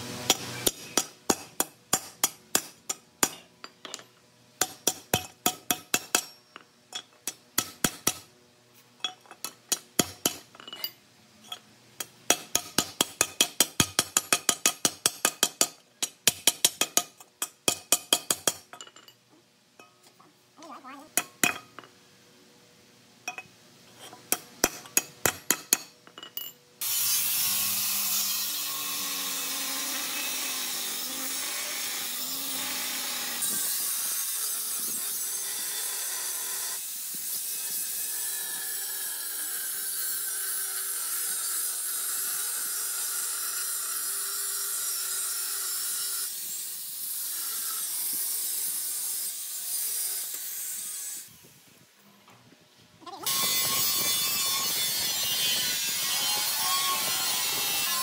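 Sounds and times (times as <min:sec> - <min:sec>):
power tool grinding metal: 0:26.8 - 0:51.4, 0:53.3 - 0:58.0.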